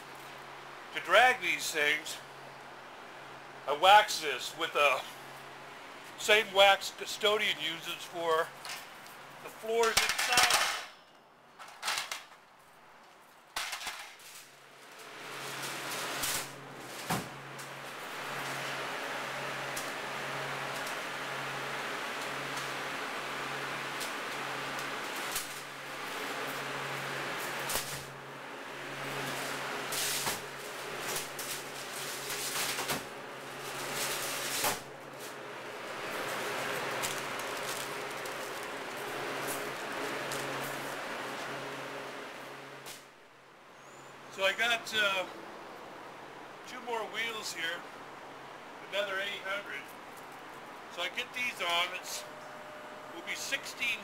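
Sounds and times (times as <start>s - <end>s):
cooler fans rushing and humming: 0.0s - 54.0s
trays clattering on cart: 9.8s - 11.0s.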